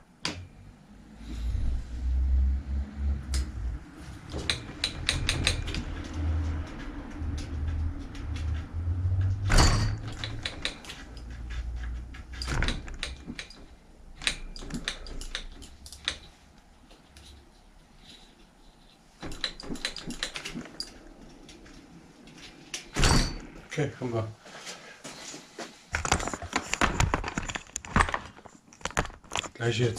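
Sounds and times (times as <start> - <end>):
small metallic clicks and rattles: 4.3 - 8.6, 9.2 - 17.5, 19.2 - 21.6.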